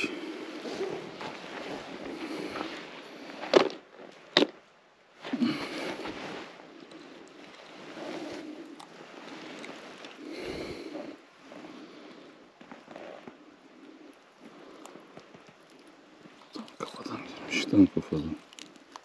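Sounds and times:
rustling handling noise: 0:05.2 - 0:10.2.

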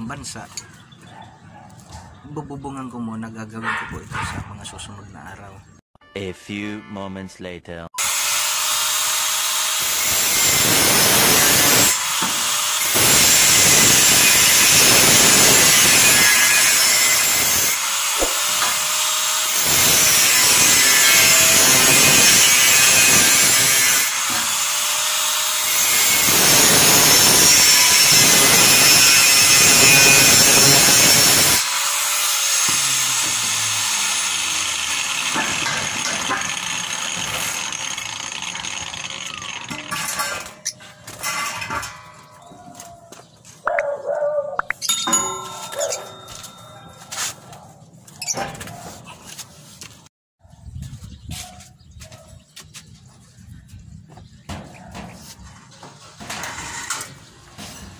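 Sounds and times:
angle grinder cutting metal: 0:08.0 - 0:42.4, 0:44.8 - 0:47.4.

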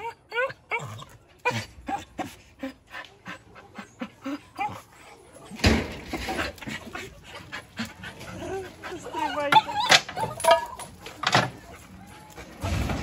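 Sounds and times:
dog panting: 0:02.2 - 0:05.4, 0:06.2 - 0:09.8
small dog whining and yipping: 0:09.1 - 0:10.9.

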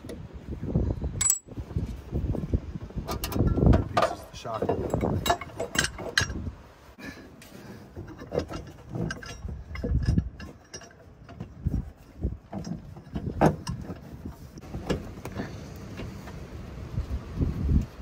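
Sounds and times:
metal clinks and knocks: 0:01.2 - 0:01.6, 0:03.0 - 0:06.6, 0:07.9 - 0:15.1.

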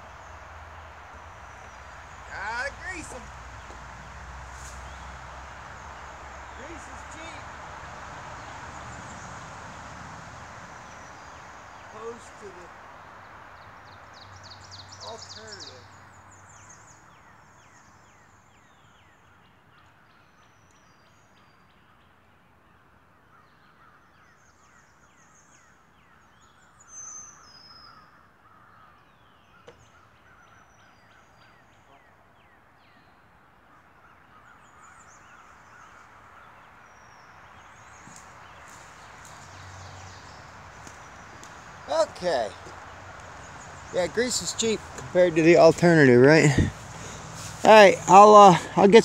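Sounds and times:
loud bird call: 0:00.0 - 0:12.8, 0:13.9 - 0:19.0, 0:33.7 - 0:49.0
birds chirping and trilling: 0:00.0 - 0:49.0.

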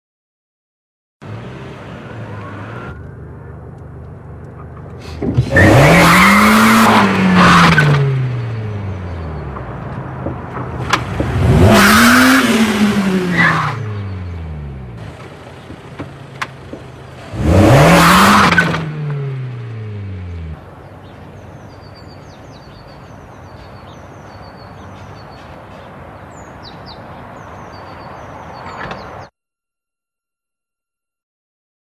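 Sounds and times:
car engine revving: 0:05.2 - 0:09.4, 0:10.5 - 0:20.7
birds chirping: 0:08.2 - 0:09.9, 0:13.8 - 0:18.0, 0:20.0 - 0:29.3.

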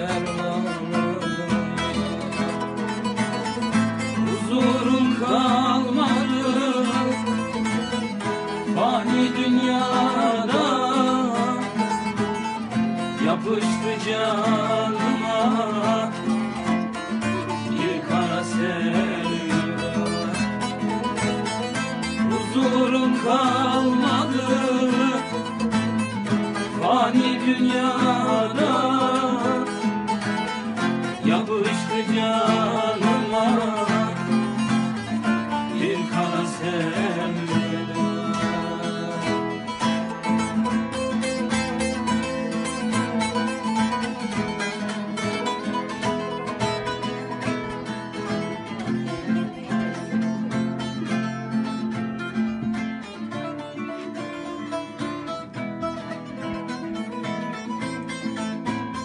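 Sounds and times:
plucked string folk duet: 0:00.0 - 0:59.0.

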